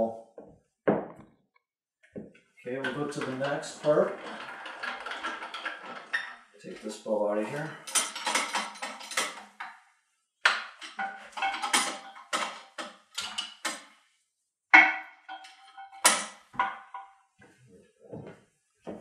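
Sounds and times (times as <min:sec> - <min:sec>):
metallic clicks and rattles: 0:02.8 - 0:06.8, 0:07.6 - 0:09.8, 0:10.7 - 0:13.9, 0:15.3 - 0:17.0
metal knocks: 0:14.8 - 0:17.1.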